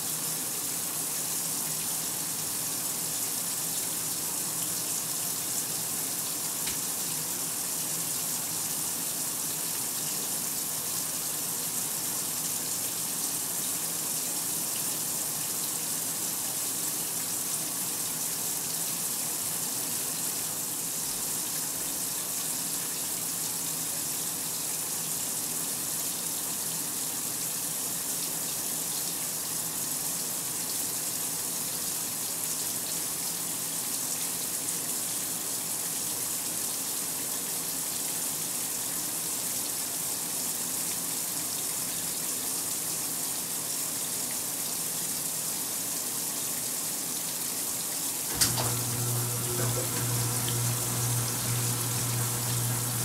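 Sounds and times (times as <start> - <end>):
water rushing into washer tub: 48.2 - 53.0.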